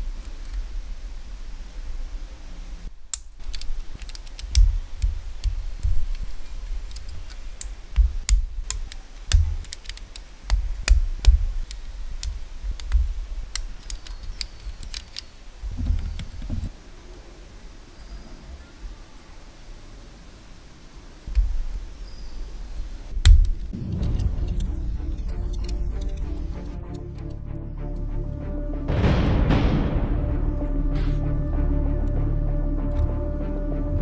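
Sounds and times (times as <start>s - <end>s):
plastic bricks snapping together: 3.1s - 16.5s, 23.1s - 26.4s.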